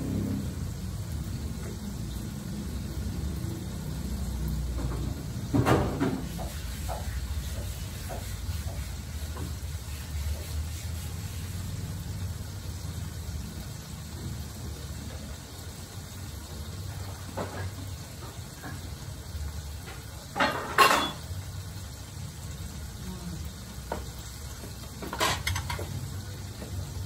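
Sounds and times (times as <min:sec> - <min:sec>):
gas stove low rumble: 0:00.0 - 0:06.5
meat sizzling in a wok: 0:00.0 - 0:27.0.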